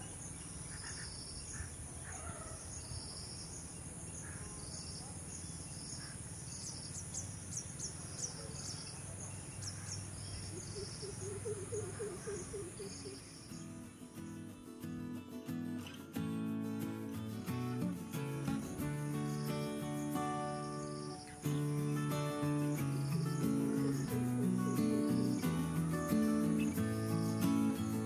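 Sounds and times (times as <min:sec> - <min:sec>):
insect pulsed chirp: 0:00.0 - 0:28.0
insects droning: 0:00.0 - 0:28.0
high bird chirps: 0:18.6 - 0:28.0.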